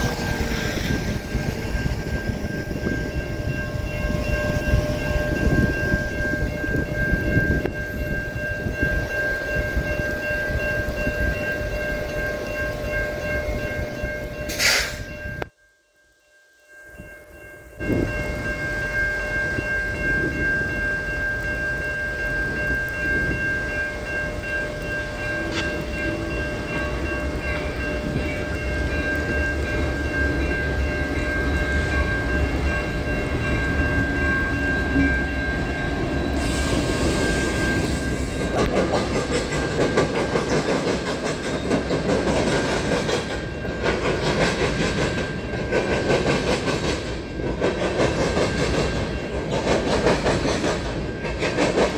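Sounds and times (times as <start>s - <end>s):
diesel locomotive rumbling: 0.0s - 15.5s, 17.8s - 51.9s
crossing warning bell ringing: 0.0s - 51.9s
train wheels clickety-clack: 25.3s - 51.9s.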